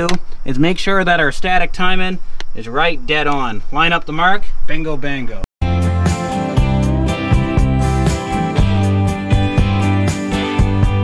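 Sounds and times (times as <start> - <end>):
upbeat guitar music with beat: 5.6 - 11.0.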